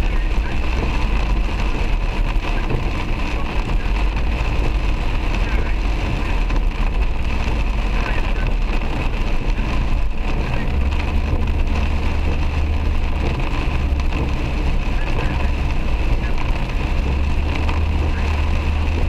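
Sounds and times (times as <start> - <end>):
heavy rain on car roof: 0.0 - 19.0
road and engine rumble: 0.0 - 19.0.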